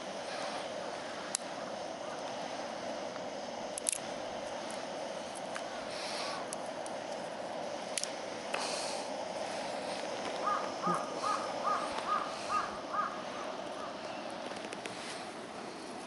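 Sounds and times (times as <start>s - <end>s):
steady hiss: 0.0s - 16.0s
crow cawing: 10.4s - 14.0s.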